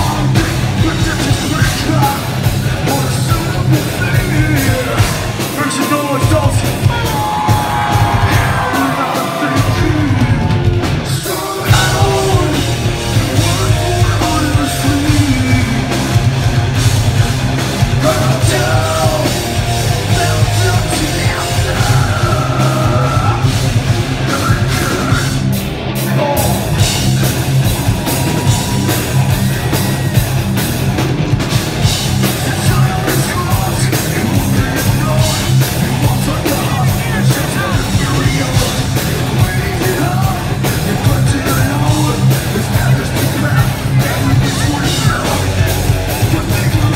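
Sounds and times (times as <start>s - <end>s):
person singing: 0.0s - 16.2s, 17.9s - 23.6s, 32.2s - 46.9s
hard rock band playing: 0.0s - 46.9s.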